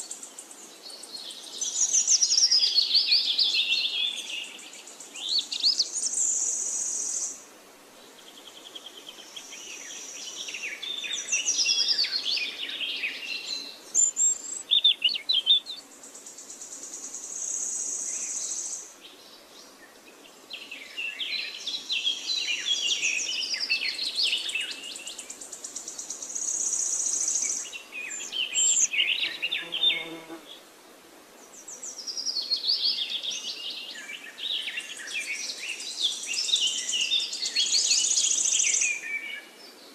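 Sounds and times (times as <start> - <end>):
birds chirping and calling: 27.4 - 30.2.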